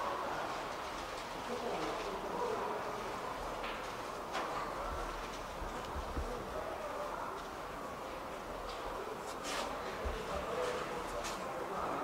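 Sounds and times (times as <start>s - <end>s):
crowd chatter murmur: 0.0s - 12.0s.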